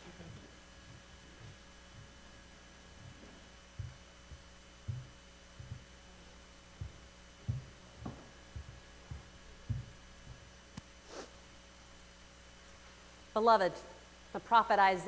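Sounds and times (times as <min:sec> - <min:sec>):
electrical hum: 0:00.0 - 0:15.0
soft low thumps: 0:00.2 - 0:10.8.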